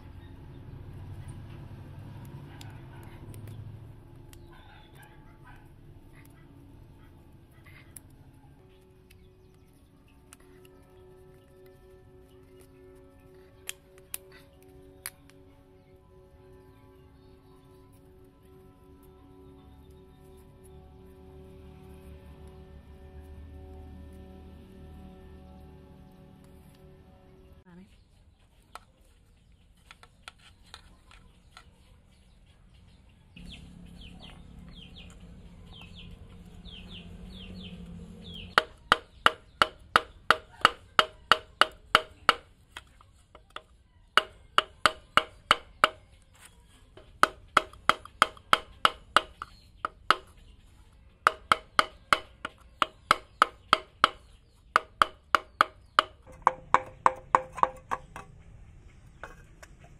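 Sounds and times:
wooden stick knocking on piston: 0:51.2 - 0:58.4.

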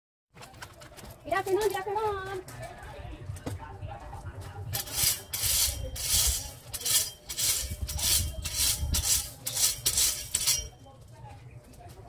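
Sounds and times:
rake scraping through gravel: 0:04.8 - 0:10.8.

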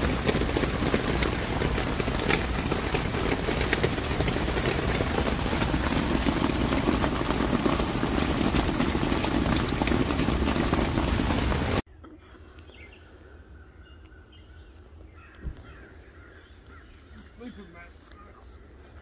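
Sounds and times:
rain on tent fabric: 0:00.0 - 0:11.8.

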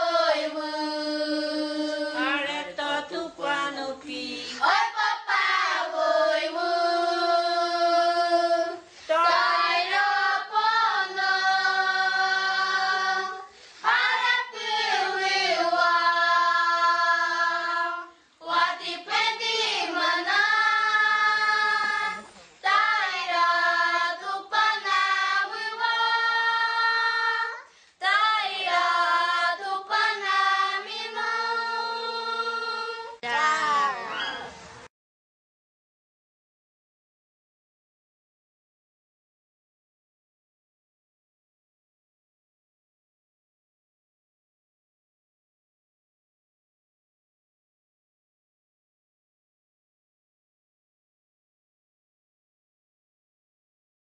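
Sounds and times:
children and woman singing unaccompanied: 0:00.0 - 0:34.6.

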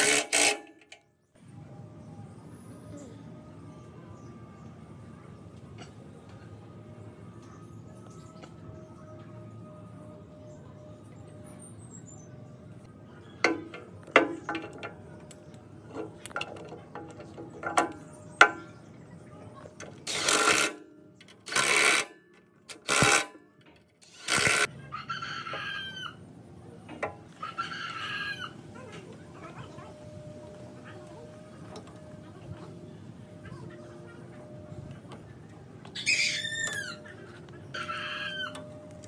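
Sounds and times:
rooster crowing: 0:24.8 - 0:26.2, 0:27.4 - 0:28.6, 0:37.7 - 0:38.9.

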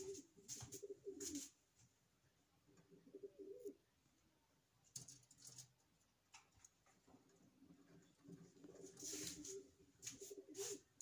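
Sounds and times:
faint pigeon cooing: 0:00.0 - 0:01.6, 0:02.6 - 0:04.0, 0:07.2 - 0:11.0
brief scratchy noises: 0:08.8 - 0:11.0.

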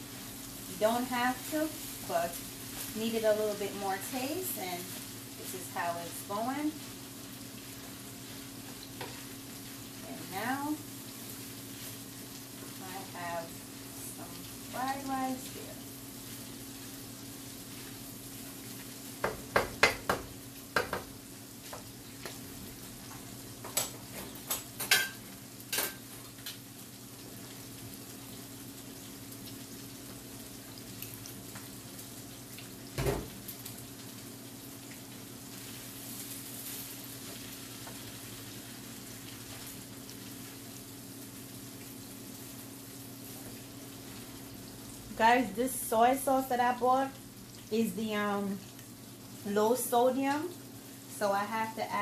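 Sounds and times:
food sizzling in a pan: 0:00.0 - 0:52.0
spatula knocking and scraping pan: 0:19.2 - 0:22.4.

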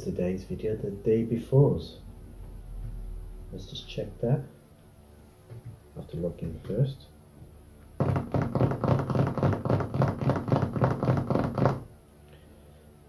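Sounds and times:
fast typing on laptop keyboard: 0:08.0 - 0:11.9.

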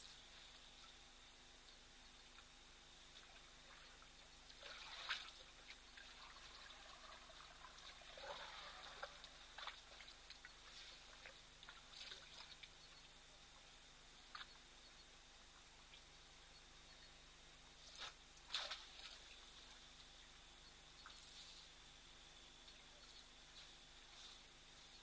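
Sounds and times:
water trickling and splashing: 0:03.1 - 0:13.6, 0:17.9 - 0:20.2.

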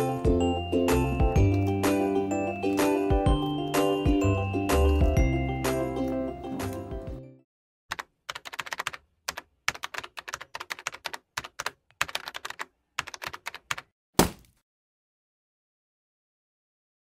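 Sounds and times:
loud thump: 0:14.2 - 0:14.5.

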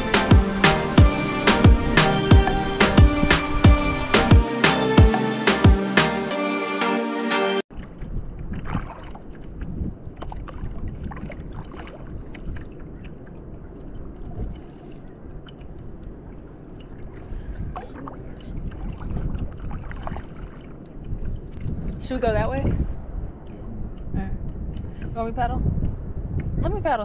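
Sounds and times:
paddle splashing in water: 0:07.7 - 0:21.6
low wind rumble on microphone: 0:07.7 - 0:27.0
water lapping at hull: 0:07.7 - 0:27.0.

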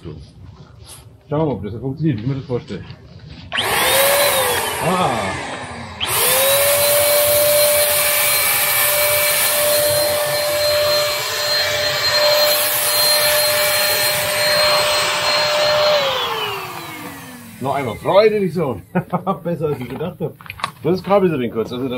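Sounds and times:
spray gun motor whining: 0:03.5 - 0:18.9
spray hissing: 0:06.4 - 0:18.2.

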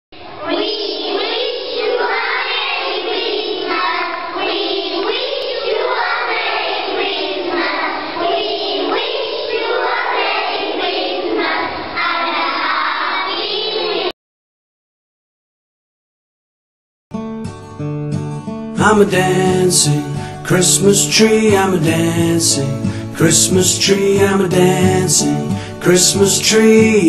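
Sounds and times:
children singing in chorus: 0:00.2 - 0:14.1
music: 0:17.1 - 0:27.0.

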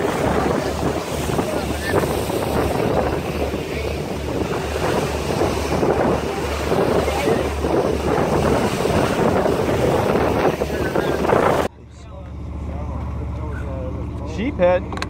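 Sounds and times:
wind buffeting microphone: 0:00.0 - 0:11.7
pulsing low rumble: 0:00.0 - 0:15.0
water rushing along hull: 0:00.0 - 0:15.0.

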